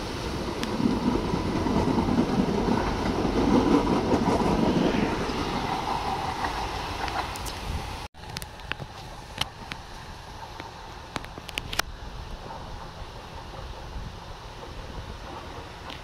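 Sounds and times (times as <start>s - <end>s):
electric train hum: 0.0s - 16.0s
train wheels rumbling on rails: 0.0s - 16.0s.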